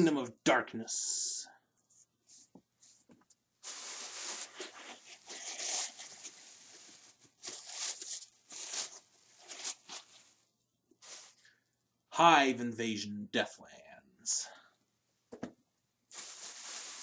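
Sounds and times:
gift bag rustling: 0:03.6 - 0:10.4, 0:11.0 - 0:11.5, 0:16.1 - 0:17.0.

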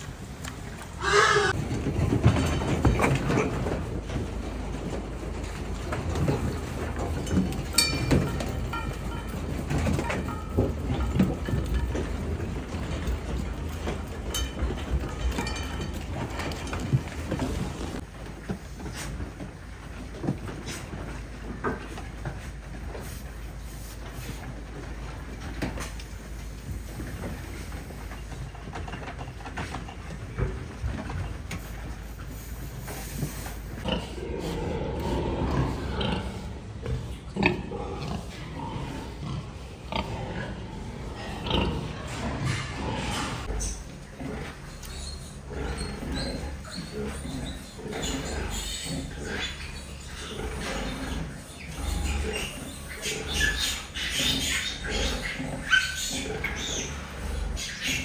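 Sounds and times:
pigs grunting: 0:00.8 - 0:18.0, 0:33.8 - 0:58.0
animals calling: 0:01.0 - 0:01.6, 0:43.1 - 0:58.0.

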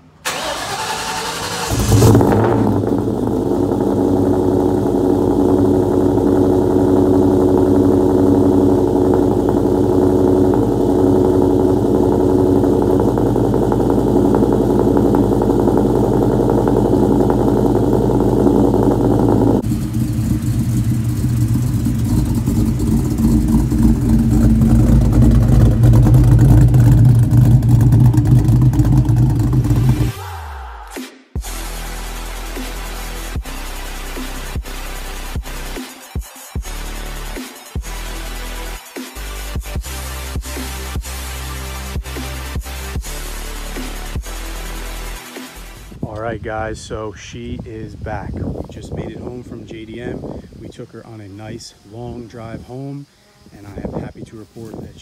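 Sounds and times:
car engine idling: 0:00.0 - 0:30.2
car engine starter cranking: 0:00.2 - 0:06.0, 0:07.0 - 0:30.1
engine running with deeper note: 0:01.6 - 0:30.2, 0:36.7 - 0:52.6.

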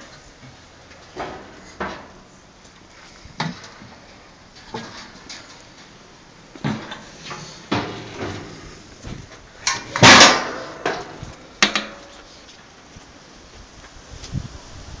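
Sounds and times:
steel lids clanking: 0:00.0 - 0:12.3
metal clang ringing: 0:09.7 - 0:12.1.

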